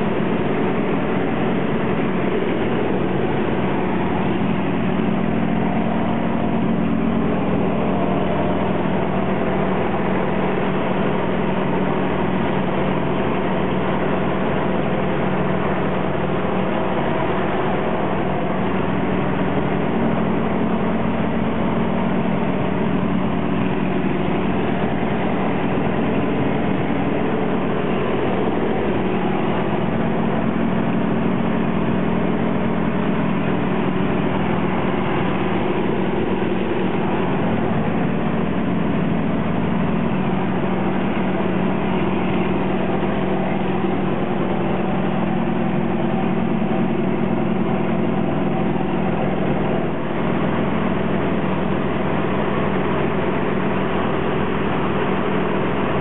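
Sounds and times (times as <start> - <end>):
propeller plane engine droning: 0.0 - 56.0.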